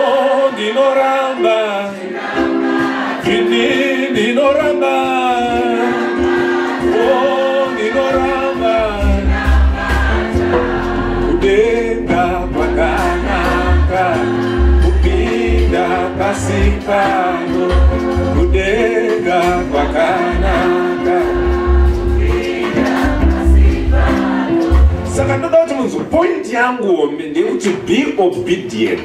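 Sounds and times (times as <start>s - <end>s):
man singing into a microphone: 0.0s - 2.0s, 3.2s - 6.1s, 6.8s - 9.3s, 11.2s - 21.4s
choir singing: 0.0s - 25.4s
held chords: 1.4s - 25.8s
low bass notes: 7.9s - 25.7s.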